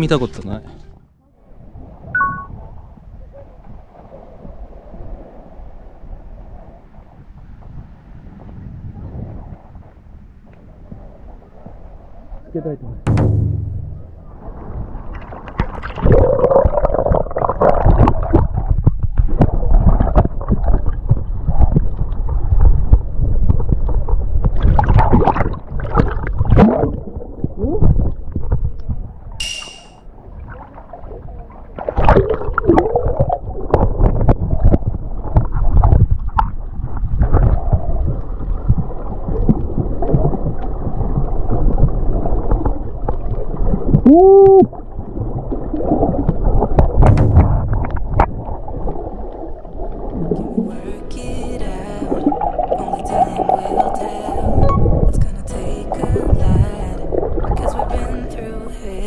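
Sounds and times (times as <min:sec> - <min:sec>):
water splashes: 0:13.1 - 0:28.7, 0:30.1 - 0:59.0
water sloshing and gurgling: 0:13.1 - 0:29.4, 0:30.1 - 0:50.8, 0:52.0 - 0:55.3, 0:55.9 - 0:58.8
muffled person exclaiming: 0:44.0 - 0:44.7.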